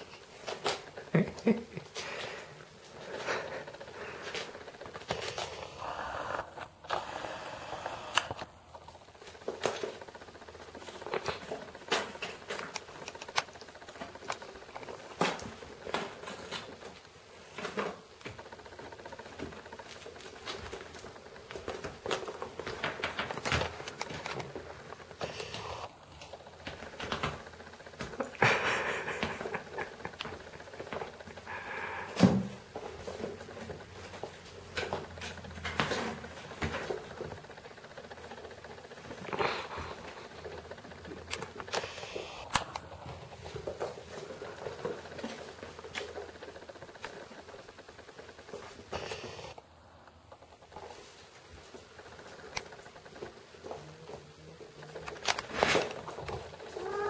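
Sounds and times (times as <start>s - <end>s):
kittens' paws pattering on wood: 7.4s - 49.6s.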